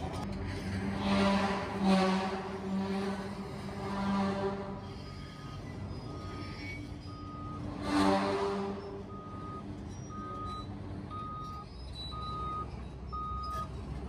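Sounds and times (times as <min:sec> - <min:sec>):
diesel engines rumbling: 0:00.0 - 0:14.0
backup alarm beeping: 0:07.1 - 0:07.7, 0:08.8 - 0:13.7.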